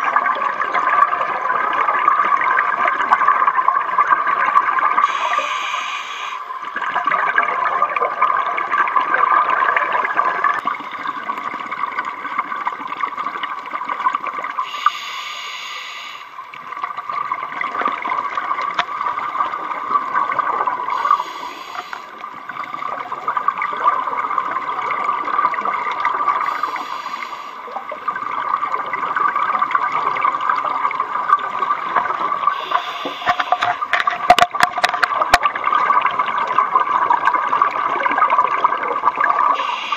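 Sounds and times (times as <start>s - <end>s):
exhaled bubbles gurgling: 0.0s - 39.9s
regulator inhalation hiss: 5.0s - 6.6s, 14.6s - 16.4s, 20.9s - 22.2s, 26.4s - 27.7s, 32.5s - 33.8s, 39.6s - 39.9s.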